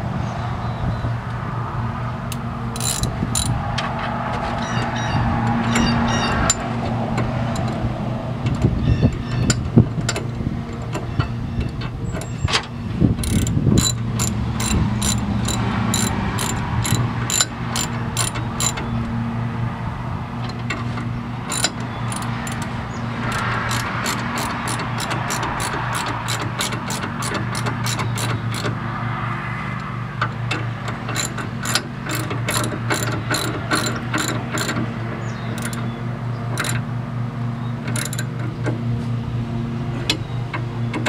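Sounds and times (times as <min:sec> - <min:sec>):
ratchet wrench clicking: 0:02.3 - 0:03.6, 0:05.4 - 0:06.7, 0:07.5 - 0:07.9, 0:13.2 - 0:18.9, 0:21.4 - 0:28.8, 0:30.5 - 0:34.9, 0:35.5 - 0:35.9, 0:36.5 - 0:36.8, 0:37.8 - 0:38.4.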